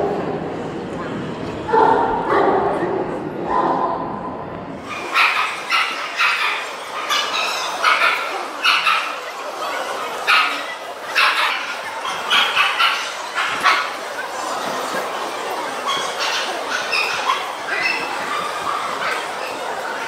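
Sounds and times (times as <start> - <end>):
dog barking: 4.9 - 9.2, 10.2 - 13.9.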